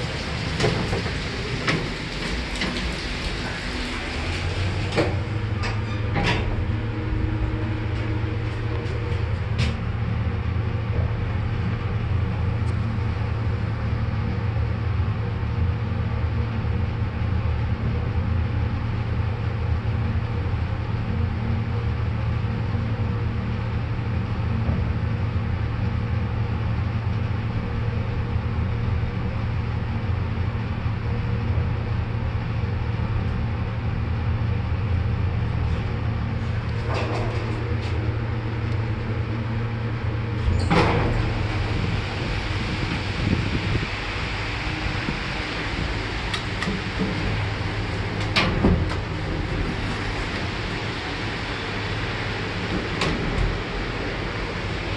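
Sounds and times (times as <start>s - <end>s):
lift door sliding open: 0.0s - 10.0s, 35.6s - 54.9s
lift car humming: 0.0s - 54.9s.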